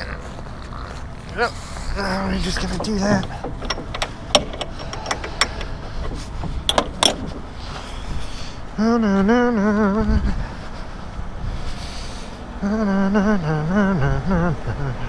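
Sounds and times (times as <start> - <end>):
sharp clicks: 2.3 - 7.8
man humming: 12.6 - 15.0.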